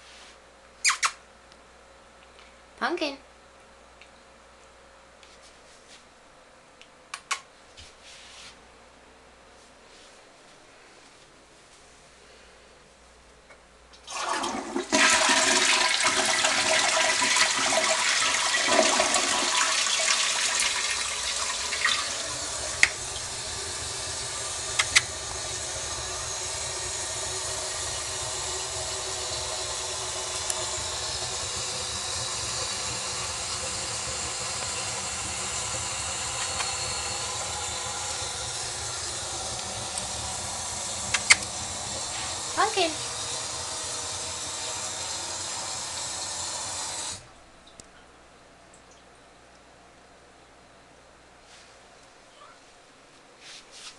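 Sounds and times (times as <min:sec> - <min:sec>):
toilet flushing: 0:14.0 - 0:47.3
tank refilling hiss: 0:14.3 - 0:47.3.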